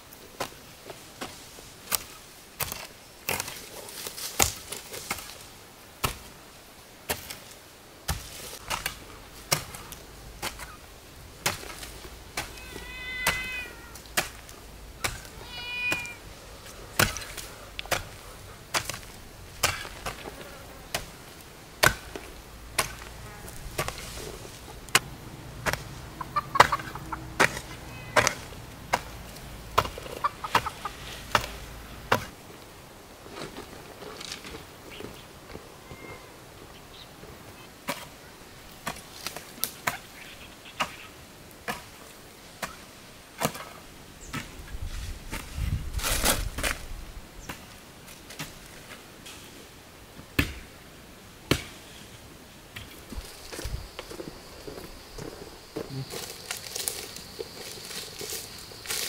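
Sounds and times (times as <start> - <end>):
hoe chopping into soil: 1.2 - 5.4, 6.0 - 6.3, 7.1 - 10.8, 11.4 - 32.4, 43.4 - 46.8, 50.4 - 50.7, 51.5 - 52.0
cat meowing: 12.5 - 14.1, 15.2 - 16.2, 27.0 - 28.6, 35.8 - 36.4.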